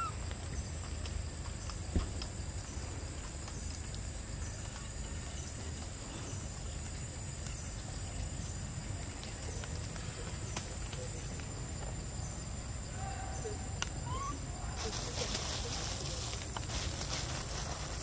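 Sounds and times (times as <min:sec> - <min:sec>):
low even hiss: 0:00.0 - 0:18.0.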